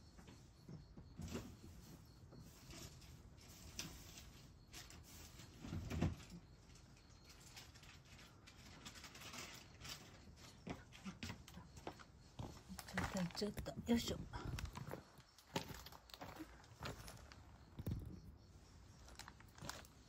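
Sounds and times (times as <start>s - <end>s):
faint clicks and rustles: 0.1s - 20.0s.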